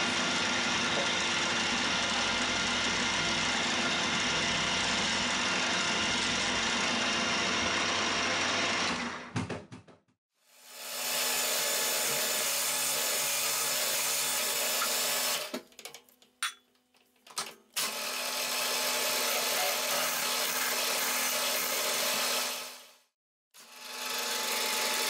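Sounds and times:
milling machine drilling metal: 17.8s - 22.6s.

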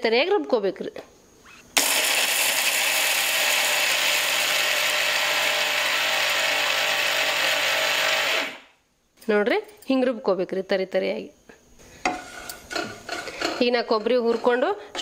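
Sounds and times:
mixer grinder grinding: 1.8s - 8.7s.

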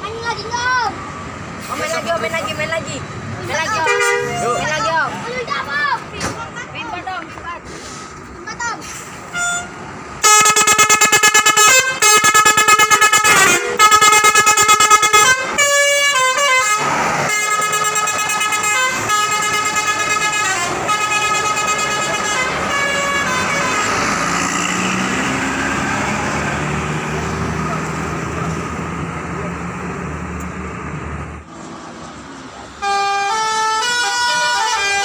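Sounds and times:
bus engine and road noise: 0.0s - 35.0s
melodic multi-tone air horn: 3.6s - 4.9s, 9.3s - 24.1s, 32.8s - 35.0s.

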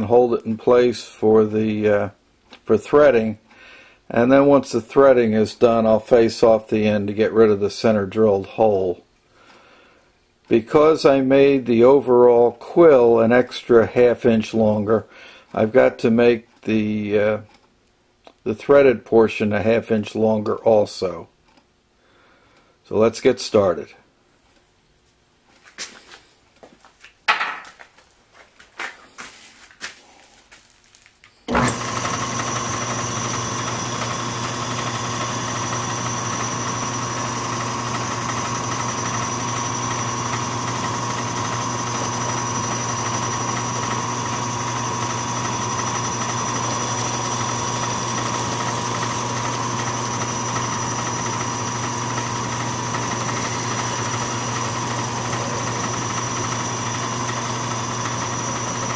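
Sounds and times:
lathe motor humming and whining: 31.5s - 58.9s.

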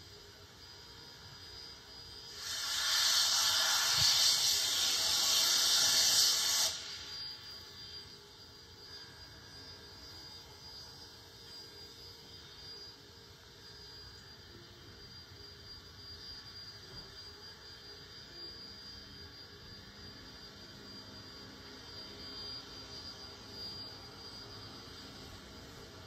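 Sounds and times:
steam locomotive rumble and hiss: 0.0s - 12.6s.

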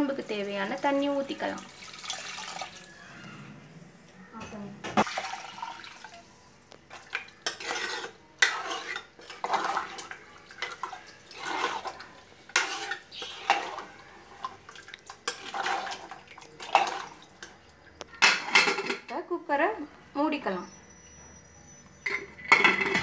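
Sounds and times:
metal ladle scraping pot: 7.4s - 17.5s.

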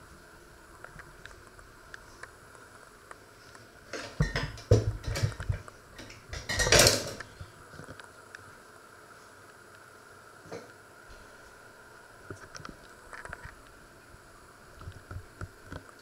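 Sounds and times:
cookware knocking and clattering: 4.2s - 5.4s, 6.3s - 7.2s.

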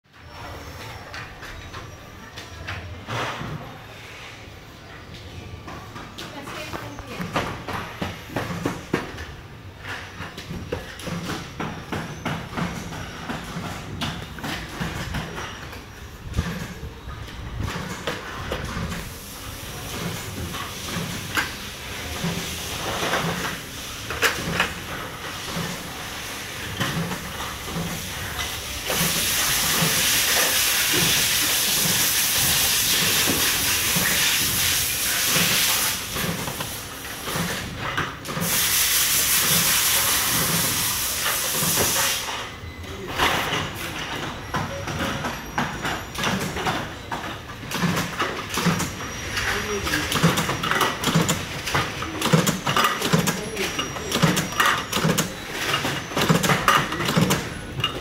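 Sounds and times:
loud steady hiss: 38.4s - 42.4s
clatter of parts being handled: 43.1s - 58.0s.

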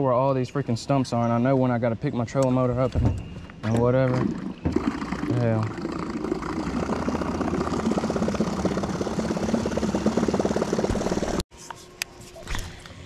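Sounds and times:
electric motor humming: 4.6s - 11.4s.

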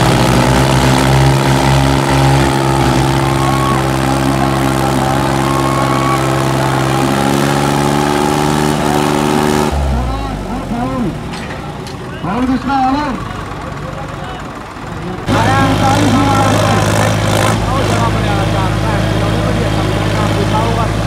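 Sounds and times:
diesel tractor engines droning: 0.0s - 21.0s.

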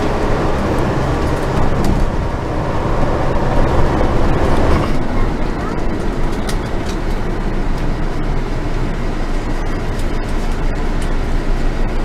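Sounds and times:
coach engine and road rumble: 0.0s - 12.0s.

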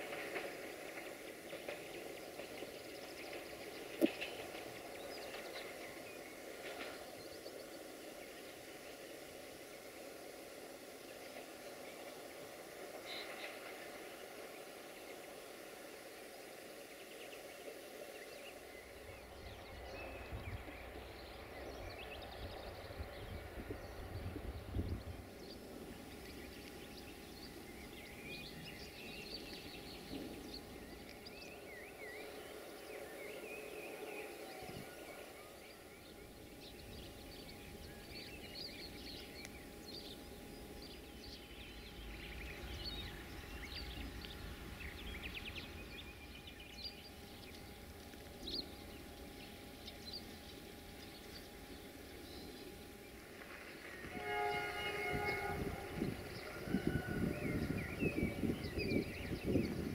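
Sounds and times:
birds chirping: 0.0s - 59.9s
locomotive horn: 53.9s - 58.6s.

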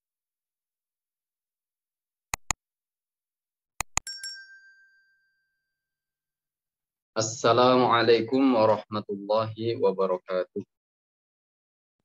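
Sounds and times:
quick mouse clicks: 2.4s - 2.6s, 3.8s - 4.0s
small bell chime: 4.0s - 6.0s.

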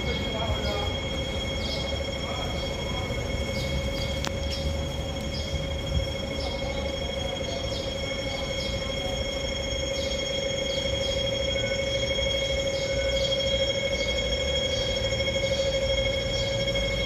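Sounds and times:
steady high whine: 0.0s - 17.0s.

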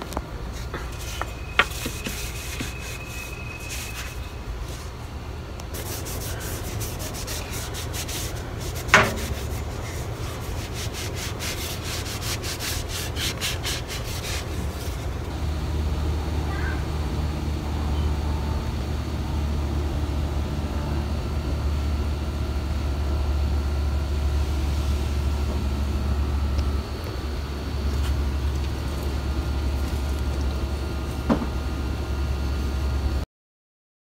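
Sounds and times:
sandpaper rubbing on wood: 0.9s - 4.9s, 5.8s - 15.1s
steady low rumble: 3.3s - 33.2s.

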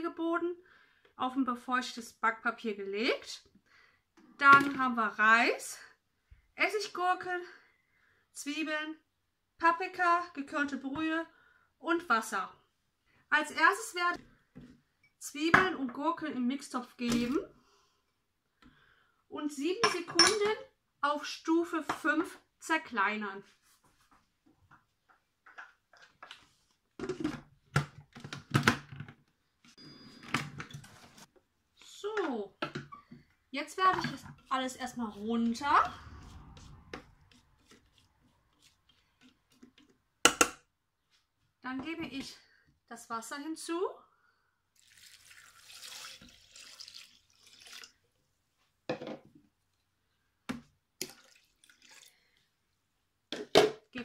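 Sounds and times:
water pouring into metal bowl: 44.8s - 48.0s, 51.0s - 52.4s.

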